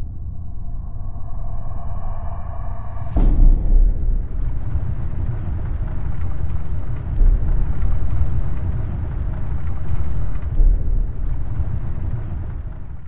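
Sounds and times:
deep rumble: 0:00.0 - 0:13.0
heavy hit: 0:00.9 - 0:08.0.

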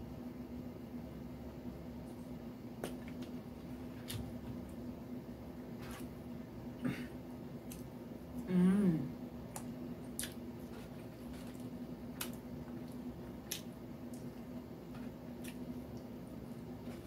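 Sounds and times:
steady low hum: 0:00.0 - 0:17.0
person chewing food: 0:07.6 - 0:08.4, 0:09.5 - 0:16.1.

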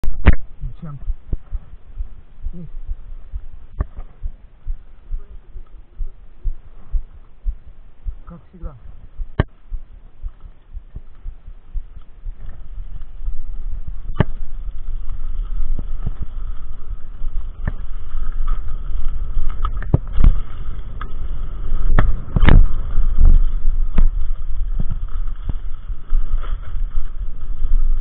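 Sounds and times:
wind noise on microphone: 0:00.0 - 0:28.0
bike rattling over bumps: 0:08.9 - 0:28.0.

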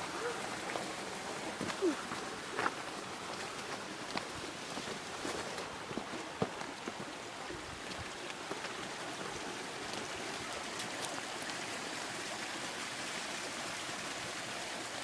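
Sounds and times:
creek rushing over rocks: 0:00.0 - 0:15.0
footsteps on gravel: 0:01.6 - 0:07.1.

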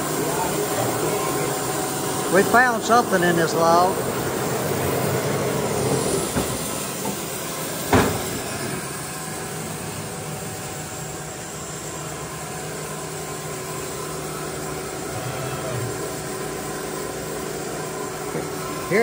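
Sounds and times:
band saw machine hum: 0:00.0 - 0:19.0
sharp knock: 0:07.9 - 0:08.3.

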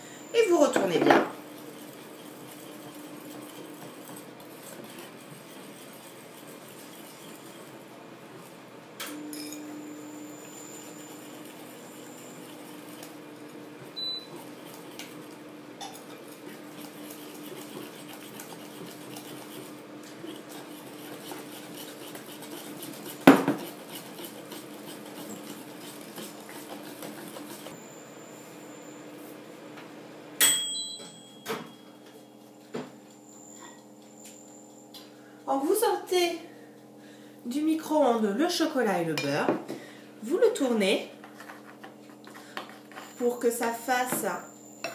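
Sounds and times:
whisk clinking against glass bowl: 0:44.1 - 0:44.9.

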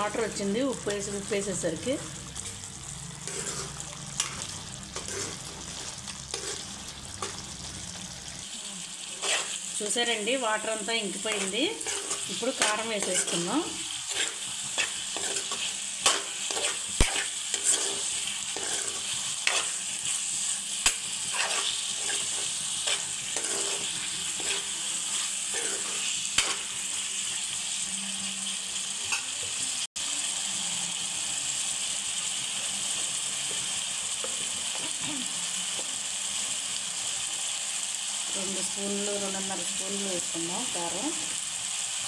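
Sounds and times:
meat sizzling in oil: 0:00.0 - 0:42.0
metal spoon scraping pan: 0:03.2 - 0:07.4, 0:09.2 - 0:10.0, 0:11.2 - 0:19.9, 0:21.2 - 0:26.7.

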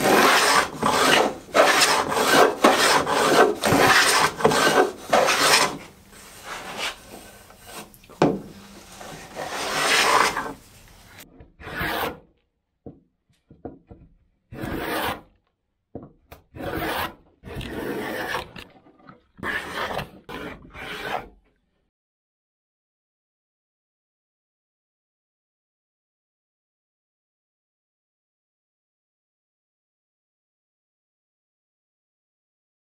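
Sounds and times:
hand plane shaving wood: 0:00.0 - 0:10.6, 0:11.6 - 0:12.3, 0:14.5 - 0:15.3, 0:16.6 - 0:21.4.

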